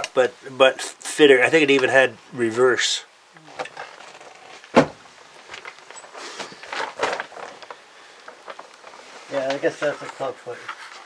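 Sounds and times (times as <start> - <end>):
handling clicks and rustles: 3.6 - 11.0.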